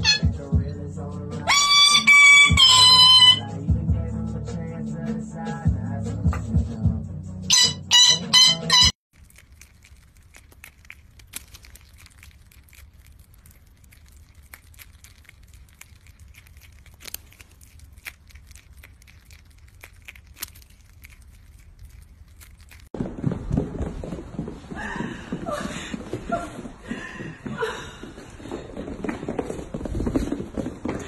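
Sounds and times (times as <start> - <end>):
shrill parrot calls: 0.0 - 0.3, 1.5 - 3.5, 7.5 - 9.0
prairie dog chewing apple: 9.1 - 23.0.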